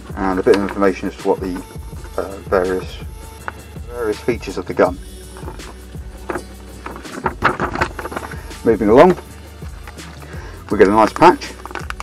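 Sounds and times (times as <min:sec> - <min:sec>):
background music: 0:00.0 - 0:12.0
paper sheet crinkling: 0:06.2 - 0:10.2.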